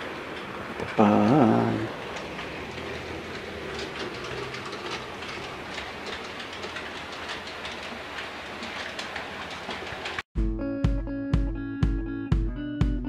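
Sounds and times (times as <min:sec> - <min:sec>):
model train rolling: 0:00.0 - 0:10.2
wheels clicking over rail joints: 0:00.0 - 0:10.3.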